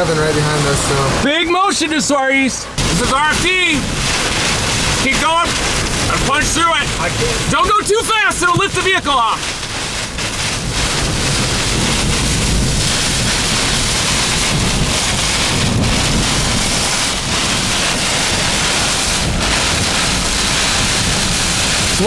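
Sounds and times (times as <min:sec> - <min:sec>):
heavy rain on a vehicle: 0:00.0 - 0:22.0
strong wind buffeting: 0:02.6 - 0:22.0.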